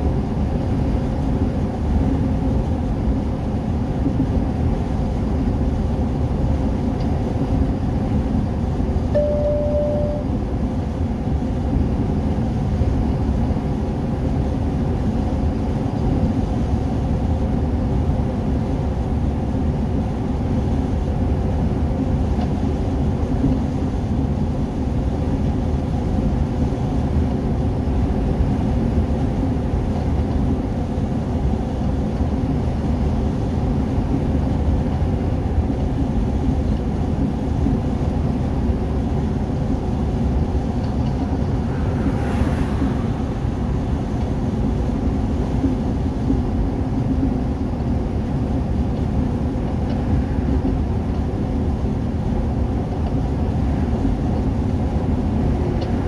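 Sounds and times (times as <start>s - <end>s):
vehicle cabin road noise: 0.0s - 56.0s
brief steady tone: 9.1s - 10.4s.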